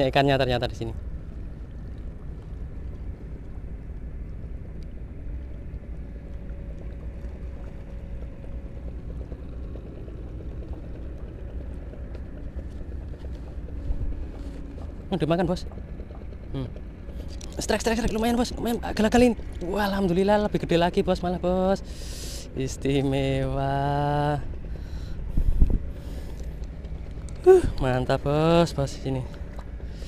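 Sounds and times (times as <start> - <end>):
faint hum: 0.0 - 30.0
wind on microphone: 25.2 - 26.3.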